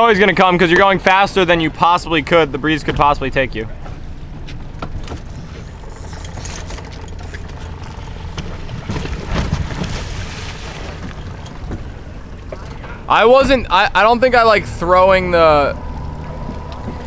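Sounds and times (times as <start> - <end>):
boat rumbling underway: 0.0 - 17.0
rush of water and rustling: 3.9 - 13.8.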